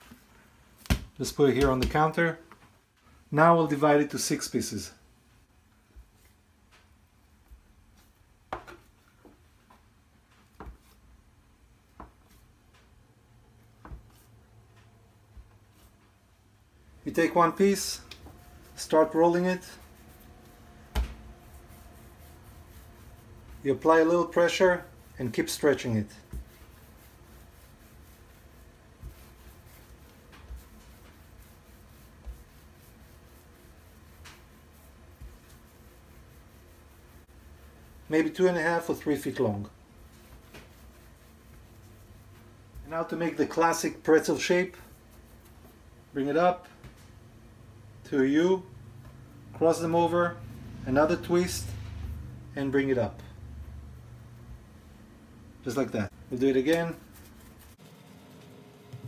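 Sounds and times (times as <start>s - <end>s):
palms rubbing over dough: 5.9s - 16.3s, 17.1s - 47.2s, 55.6s - 59.0s.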